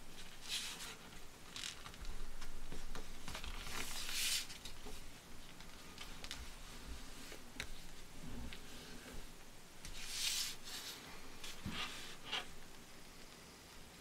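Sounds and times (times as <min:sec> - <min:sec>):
paper rustling and sliding: 0:00.1 - 0:02.1, 0:03.2 - 0:05.0, 0:08.2 - 0:12.6.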